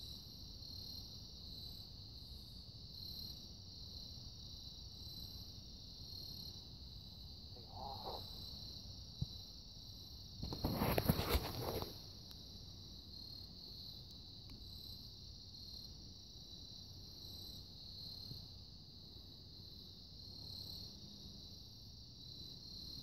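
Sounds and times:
insects chirping: 0.0s - 23.0s
rustling and crackling: 10.4s - 12.0s.

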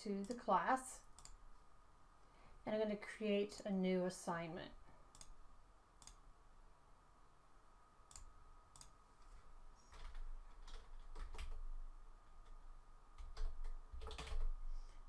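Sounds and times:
computer mouse clicks: 1.1s - 1.4s, 5.1s - 5.4s, 6.0s - 6.2s, 8.1s - 9.0s.

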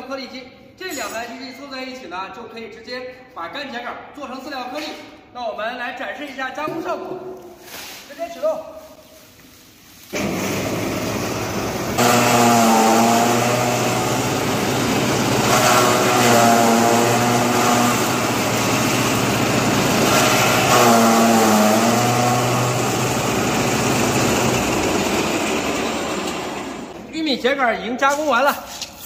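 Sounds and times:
straw shredding machine running: 10.0s - 27.1s.

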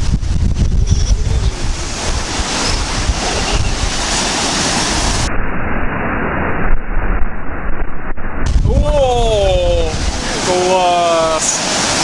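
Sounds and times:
surf washing onto shore: 0.0s - 5.3s, 8.4s - 12.0s
wind buffeting microphone: 0.0s - 10.6s.

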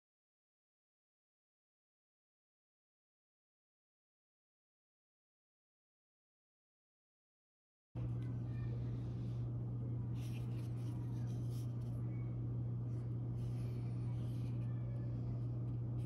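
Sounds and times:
steady low hum: 8.0s - 16.0s.

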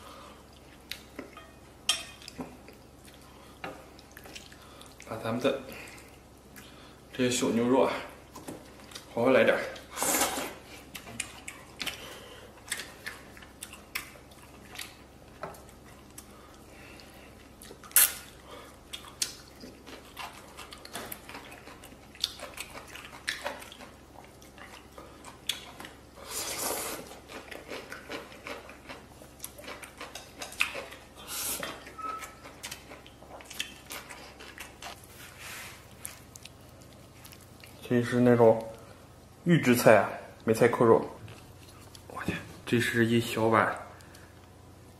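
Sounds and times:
eating sounds: 8.1s - 35.0s, 35.8s - 39.0s.

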